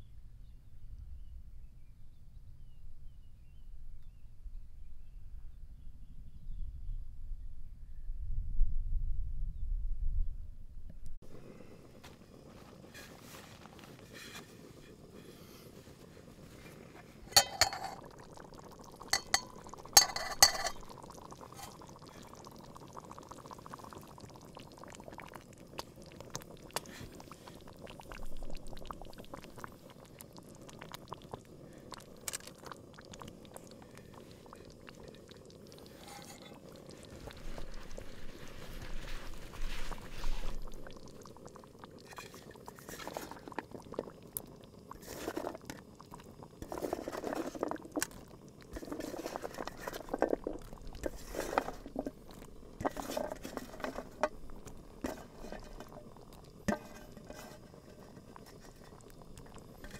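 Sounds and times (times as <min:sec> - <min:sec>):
stew bubbling: 0:11.2 - 0:59.9
pot lid clinking: 0:17.3 - 0:18.1, 0:19.1 - 0:21.8
wooden spoon stirring: 0:17.3 - 0:18.1, 0:19.0 - 0:21.9, 0:46.6 - 0:56.1, 0:56.7 - 0:59.9.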